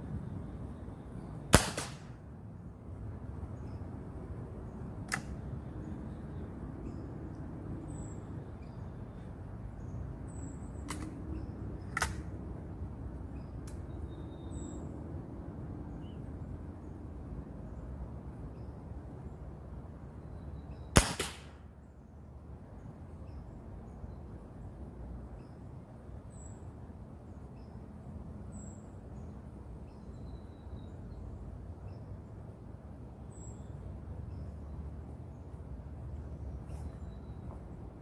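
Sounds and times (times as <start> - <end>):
air rifle shot: 1.5 - 2.2, 21.0 - 21.6
faint bird chirps: 36.3 - 37.7.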